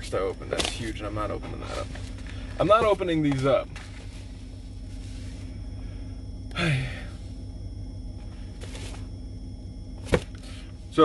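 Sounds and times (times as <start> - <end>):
vehicle cab rumble: 0.0 - 11.0
man sighing: 6.5 - 7.3.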